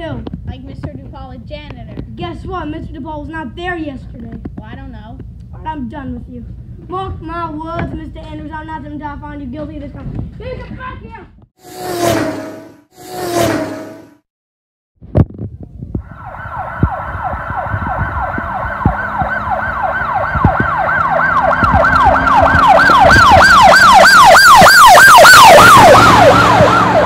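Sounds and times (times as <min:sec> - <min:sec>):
yelp siren wailing: 0:16.0 - 0:27.0.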